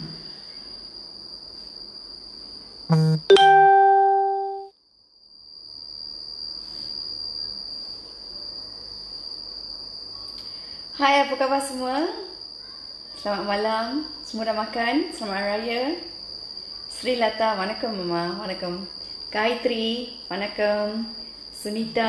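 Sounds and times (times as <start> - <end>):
faint high-pitched whine: 0.0 - 4.7
two-note electronic chime: 2.9 - 4.7.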